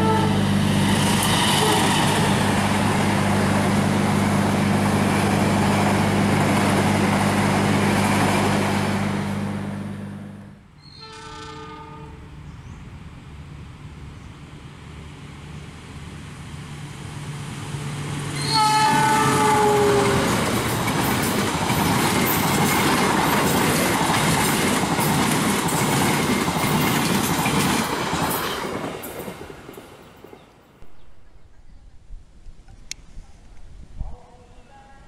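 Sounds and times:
train horn: 0.0 - 0.6, 1.4 - 2.2, 10.9 - 12.4, 18.4 - 20.4
diesel train drone: 0.0 - 31.6.

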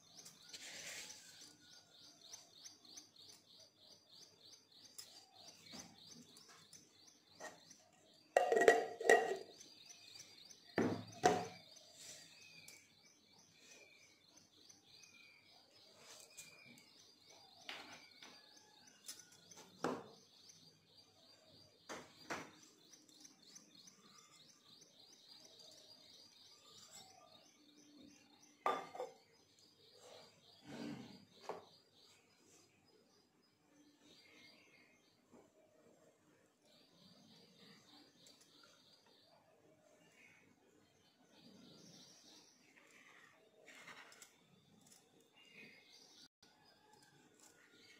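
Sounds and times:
sharp knocks and clatters: 8.4 - 9.7, 10.8 - 11.6.

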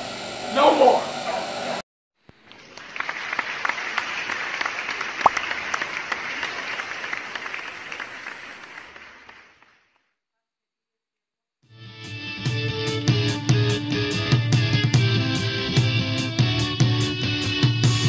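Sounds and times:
audience applause: 2.4 - 10.0.

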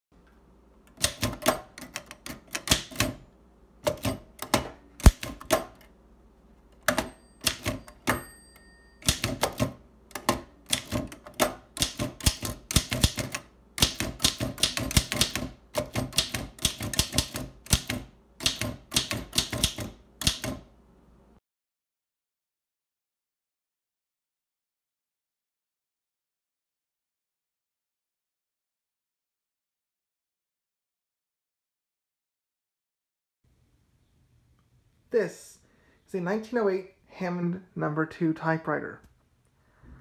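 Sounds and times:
typewriter keys clacking: 1.0 - 3.2, 6.8 - 8.2, 9.0 - 20.6
typewriter bell ding: 6.8 - 9.7.

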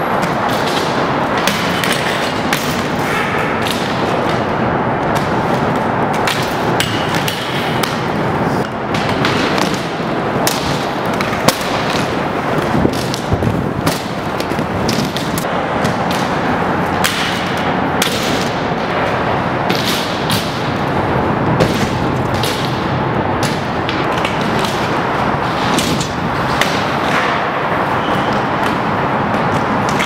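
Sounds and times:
skate wheels rolling on concrete: 0.0 - 30.0
skates clacking and thumping: 0.0 - 30.0.

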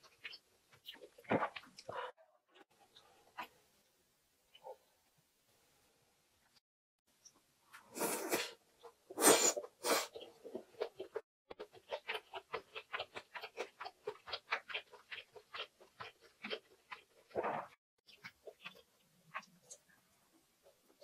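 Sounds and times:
wet chewing clicks: 10.1 - 17.5, 18.1 - 19.9.

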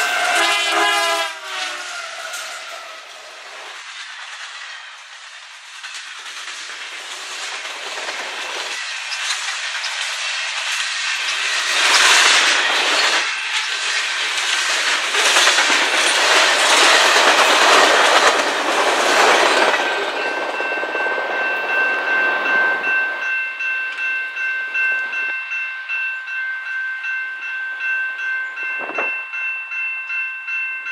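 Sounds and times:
freight train wheels clacking: 0.0 - 30.9
level crossing warning bell: 11.1 - 30.9.

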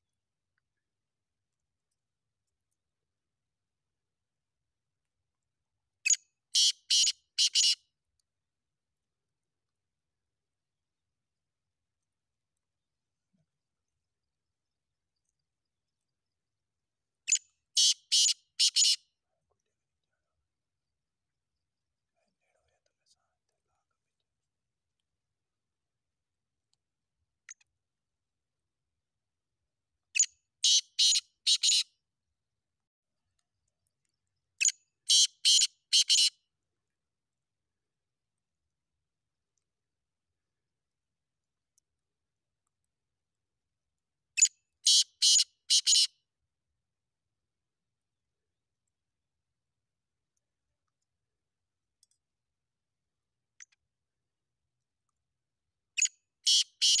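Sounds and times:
faint ticks: 52.0 - 52.2.

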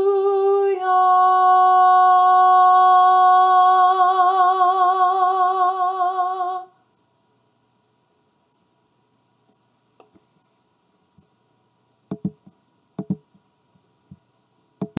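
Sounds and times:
faint steady hum: 0.0 - 15.0
short knocks and clicks: 12.1 - 13.3.

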